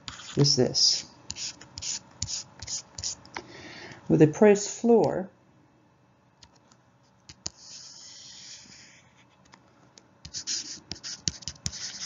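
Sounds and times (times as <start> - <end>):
stylus scratching on a tablet: 0.0 - 3.2, 7.3 - 9.4, 10.3 - 12.0.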